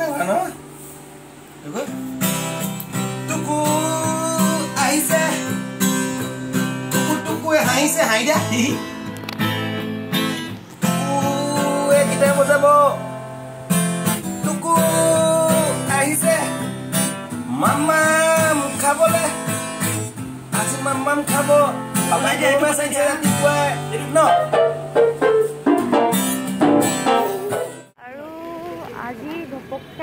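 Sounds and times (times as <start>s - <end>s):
acoustic guitar strumming: 0.0s - 30.0s
man singing: 3.2s - 5.7s, 7.0s - 8.8s, 10.8s - 13.0s, 14.3s - 16.6s, 17.5s - 19.5s, 20.5s - 24.5s.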